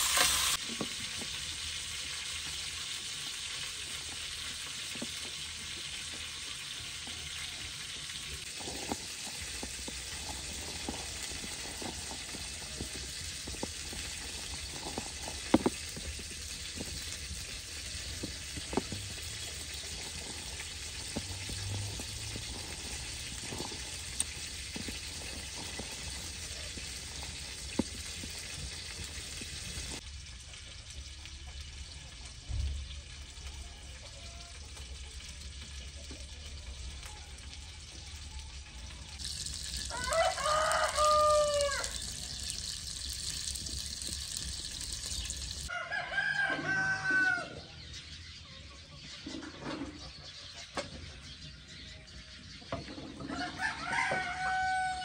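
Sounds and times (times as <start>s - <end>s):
steady hiss: 0.0s - 0.9s
rooster crowing: 39.8s - 42.5s, 45.7s - 47.7s, 53.3s - 55.0s.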